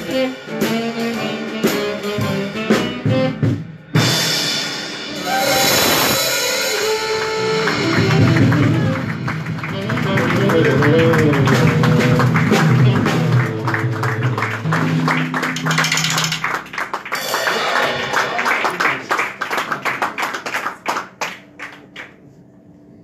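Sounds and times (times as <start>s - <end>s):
drum kit with cymbals: 0.0s - 19.0s
acoustic bass line: 7.0s - 16.6s.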